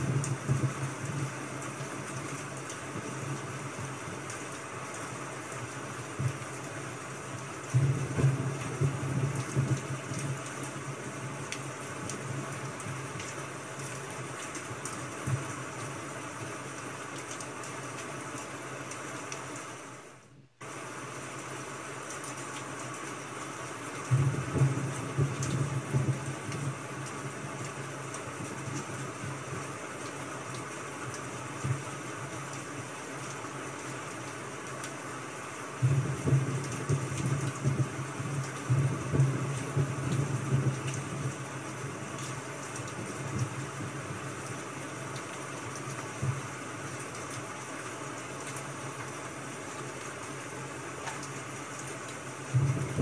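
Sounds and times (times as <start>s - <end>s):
rain hiss with faint ticks: 0.0s - 53.0s.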